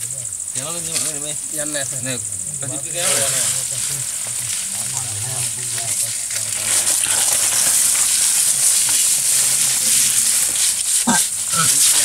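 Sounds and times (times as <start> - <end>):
faint voices murmuring: 0.0 - 7.6
high-pitched hiss: 0.0 - 12.0.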